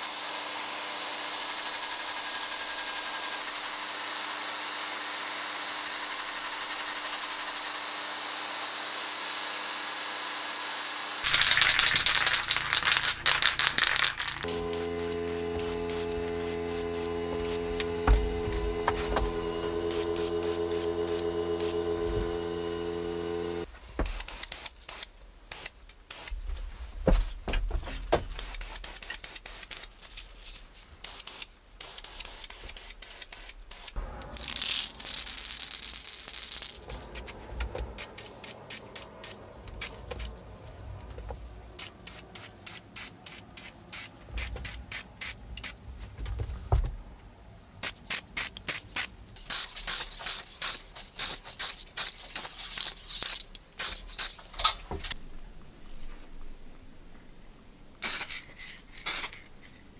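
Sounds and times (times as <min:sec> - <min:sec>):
spray can rattling: 0:11.2 - 0:17.6, 0:31.0 - 0:46.2, 0:47.8 - 0:54.6, 0:58.0 - 0:59.9
spray paint can hissing: 0:11.2 - 0:18.2, 0:19.0 - 0:21.8, 0:24.1 - 0:26.3, 0:28.4 - 0:30.1, 0:31.0 - 0:46.0, 0:47.8 - 0:54.5, 0:58.0 - 0:59.8.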